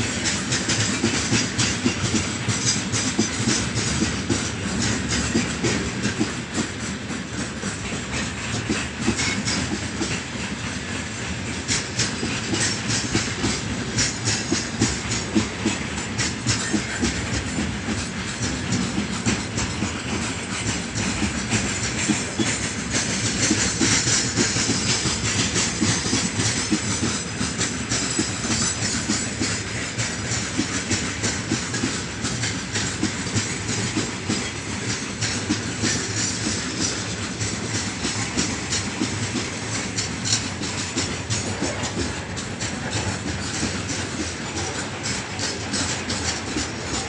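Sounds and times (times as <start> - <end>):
freight train rumbling past: 0.0 - 47.0
wheels clacking over rail joints: 0.0 - 47.0.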